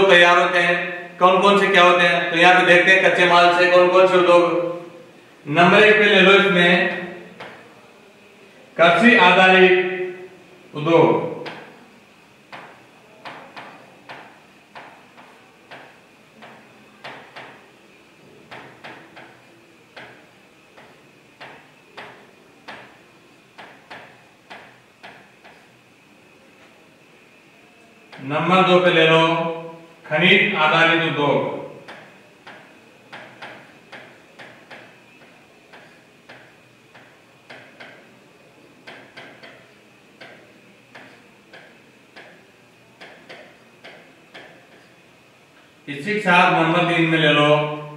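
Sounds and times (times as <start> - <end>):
marker pen tapping on whiteboard: 7.4 - 7.6, 11.4 - 11.8, 12.5 - 17.6, 18.5 - 20.2, 20.8 - 23.0, 23.6 - 25.7, 31.8 - 38.1, 38.8 - 42.4, 43.0 - 44.9.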